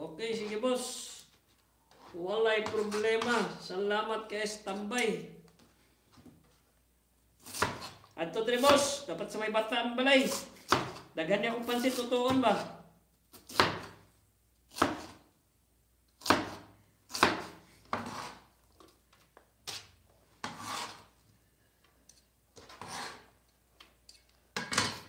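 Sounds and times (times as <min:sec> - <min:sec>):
cleaver chopping cabbage: 0:07.4 - 0:08.0, 0:10.3 - 0:11.1, 0:13.3 - 0:14.0, 0:14.7 - 0:15.2, 0:16.2 - 0:18.5.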